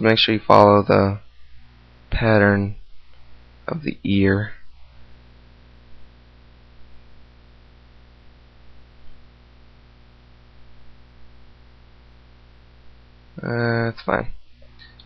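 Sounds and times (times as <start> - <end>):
electrical mains hum: 0.0 - 15.0
faint hiss: 0.0 - 15.0
faint clicks: 14.6 - 15.0.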